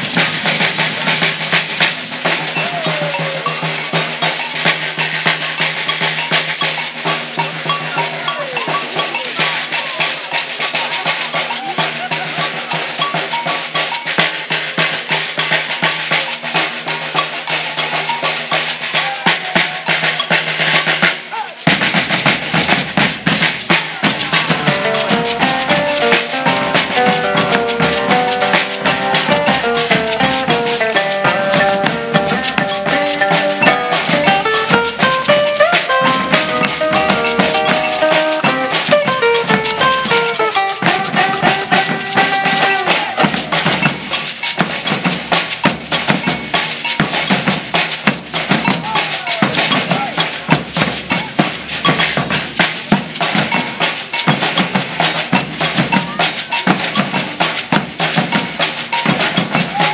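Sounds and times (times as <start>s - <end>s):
metal shakers: 0.0s - 59.9s
snare drums: 0.0s - 59.9s
bass drums: 21.6s - 53.6s
plucked guitar melody: 24.5s - 43.3s.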